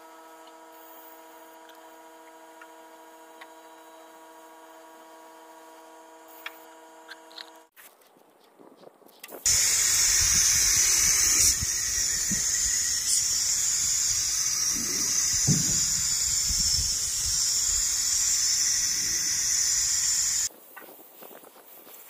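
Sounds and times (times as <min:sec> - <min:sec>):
spray gun hissing: 0:09.5 - 0:20.5.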